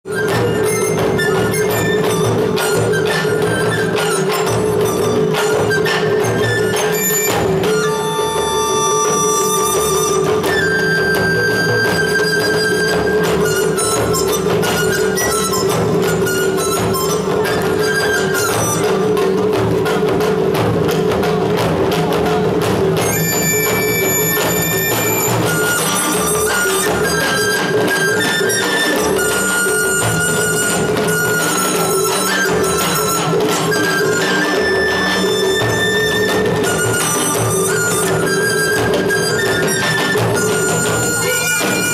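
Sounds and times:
flutes holding long notes: 0:00.0 - 0:19.4, 0:23.0 - 0:41.9
drums in dense rhythm: 0:00.1 - 0:41.9.

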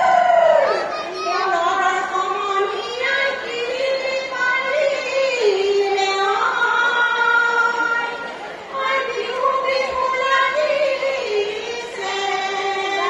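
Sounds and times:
woman singing slow melody: 0:01.3 - 0:13.0.

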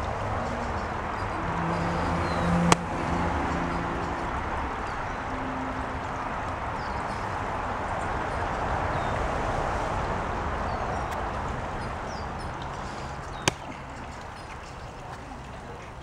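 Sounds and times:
outdoor background noise: 0:00.0 - 0:16.0
small birds chirping: 0:10.6 - 0:16.0.

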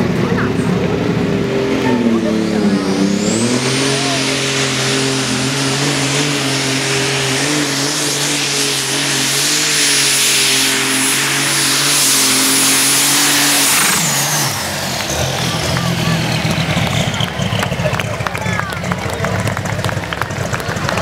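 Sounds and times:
high whine: 0:00.0 - 0:17.6
tractor engine under load: 0:00.0 - 0:21.0.

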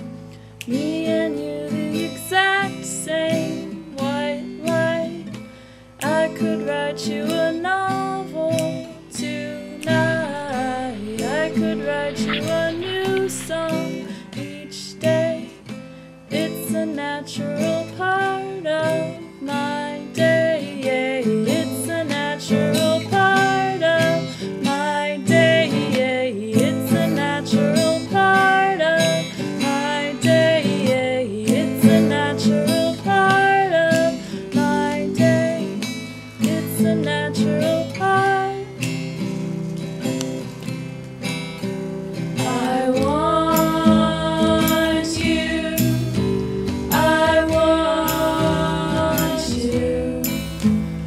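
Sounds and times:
picked guitar melody: 0:00.0 - 0:51.0
person singing: 0:06.0 - 0:15.6, 0:16.3 - 0:35.8, 0:42.4 - 0:50.9
acoustic guitar strumming: 0:07.0 - 0:51.0.

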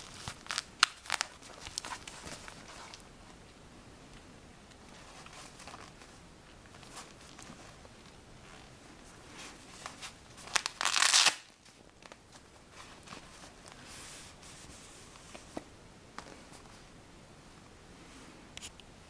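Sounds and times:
small clicks and rustles: 0:00.0 - 0:10.8.

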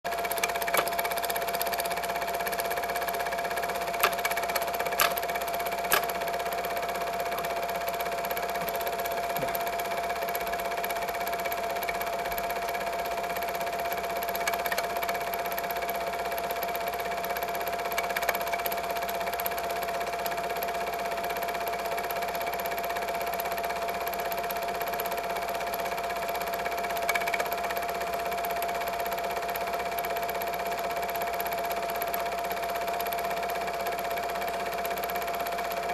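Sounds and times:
film projector whirring: 0:00.0 - 0:35.9
sharp clicks: 0:00.2 - 0:02.0, 0:03.7 - 0:06.2.

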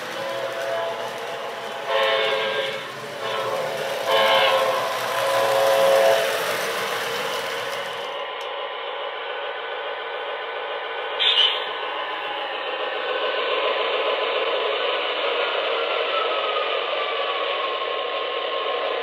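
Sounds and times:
model train electronic horn: 0:00.0 - 0:08.2
model train rumbling on track: 0:00.0 - 0:19.0.

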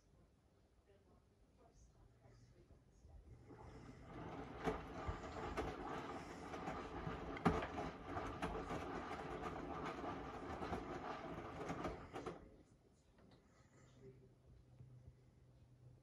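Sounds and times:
washing machine drum turning: 0:03.5 - 0:12.5.

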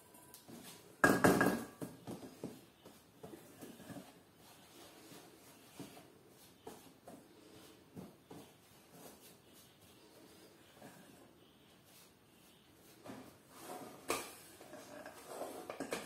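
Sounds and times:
spatula scraping bowl: 0:13.4 - 0:16.0.

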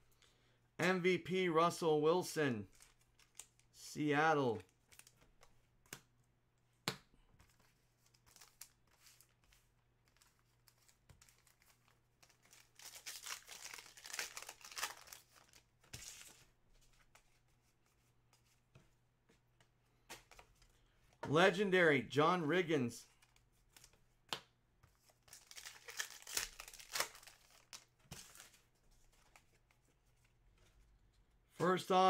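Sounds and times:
wrapper tearing and crinkling: 0:12.5 - 0:16.2, 0:25.3 - 0:28.4.

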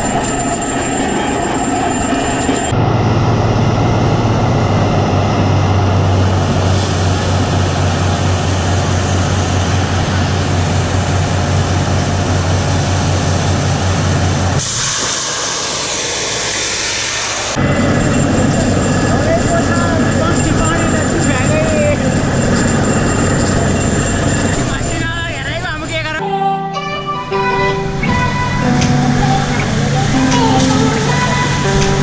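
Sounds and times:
drilling rig engine drone: 0:00.0 - 0:26.2, 0:27.2 - 0:32.0
loud hiss of rushing air: 0:14.6 - 0:17.6.

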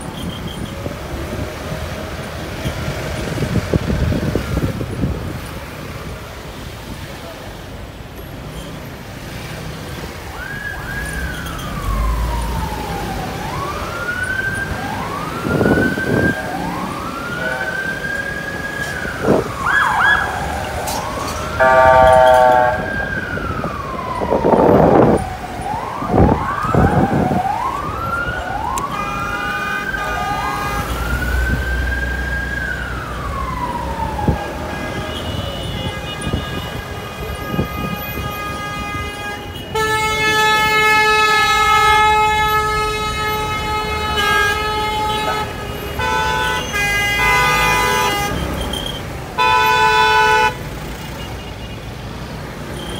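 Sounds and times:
emergency sirens wailing: 0:00.0 - 0:08.2, 0:09.1 - 0:52.9
car horn honking: 0:21.6 - 0:23.0, 0:34.6 - 0:51.8
steady horn-like tones: 0:21.6 - 0:23.0, 0:34.4 - 0:48.7, 0:49.4 - 0:50.7.

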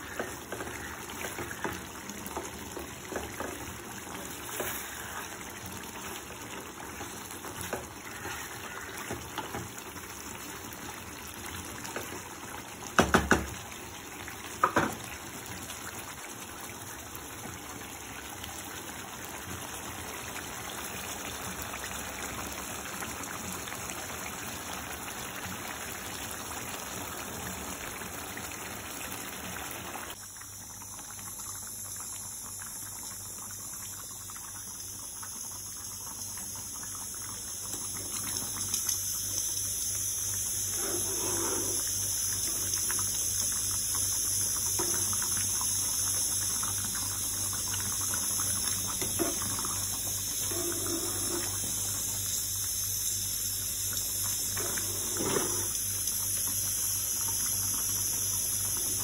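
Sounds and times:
water running: 0:00.0 - 0:15.9, 0:36.0 - 0:59.0.

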